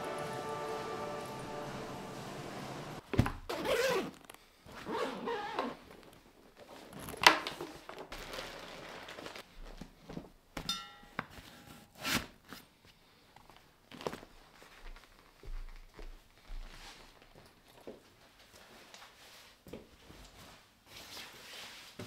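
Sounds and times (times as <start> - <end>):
backpack fabric rustling: 3.5 - 10.2.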